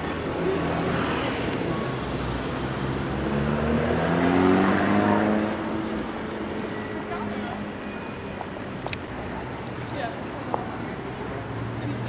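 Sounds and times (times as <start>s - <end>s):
street traffic: 0.0s - 12.0s
vehicle engine speeding up: 3.1s - 5.6s.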